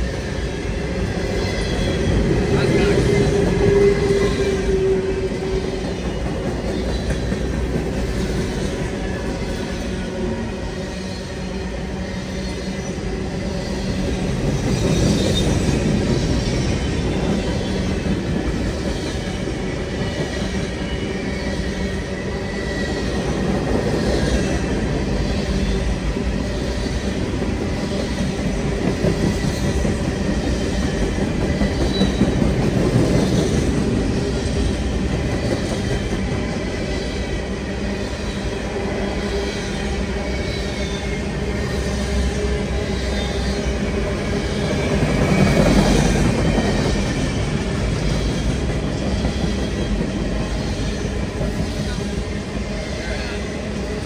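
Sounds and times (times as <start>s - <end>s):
low train rumble: 0.0s - 54.0s
train wheels clattering over joints: 27.2s - 37.2s.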